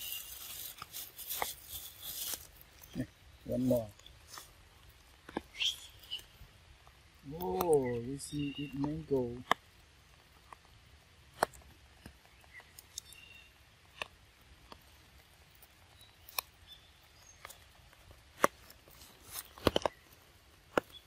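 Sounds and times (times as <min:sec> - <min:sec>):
wet forest ambience: 0:00.0 - 0:21.0.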